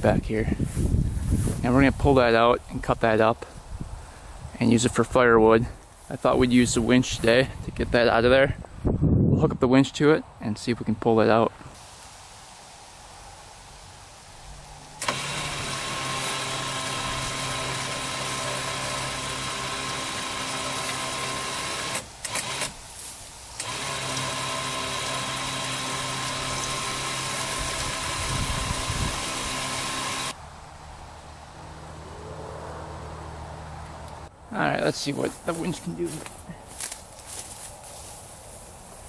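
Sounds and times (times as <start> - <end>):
electric winch motor whining: 15.0 - 22.8, 23.6 - 30.4.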